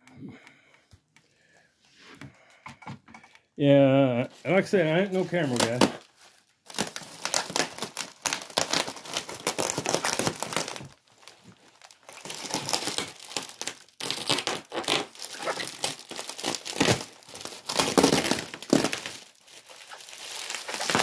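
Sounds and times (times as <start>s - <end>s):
bubble wrap crinkling: 4.2s - 21.0s.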